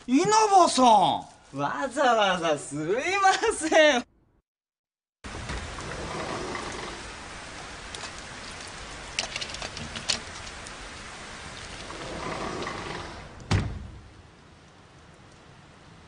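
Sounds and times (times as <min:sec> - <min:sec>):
steady rain falling: 0:05.2 - 0:16.0
dull thud: 0:13.5 - 0:14.0
drip-like ticks: 0:14.6 - 0:15.5.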